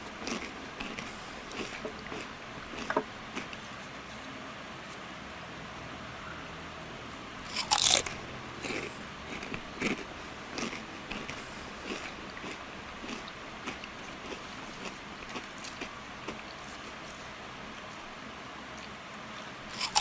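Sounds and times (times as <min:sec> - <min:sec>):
person crunching fried snack: 0:00.2 - 0:03.5, 0:07.4 - 0:16.6, 0:19.7 - 0:20.0.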